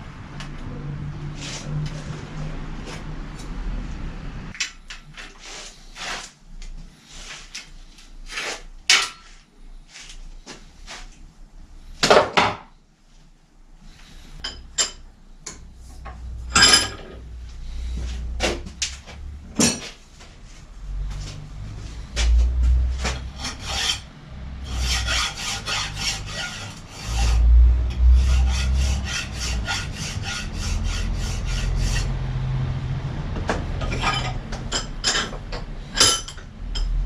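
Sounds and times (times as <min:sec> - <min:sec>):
metal tools clinking: 0:16.5 - 0:17.2, 0:33.8 - 0:37.0.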